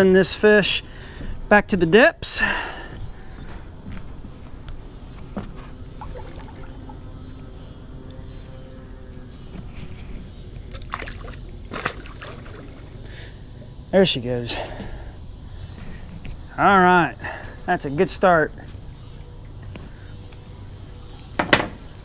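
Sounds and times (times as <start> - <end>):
high-pitched insect drone: 0.0 - 22.0
fish splashing into water: 6.0 - 7.0, 10.7 - 12.9
knocks: 21.4 - 21.8.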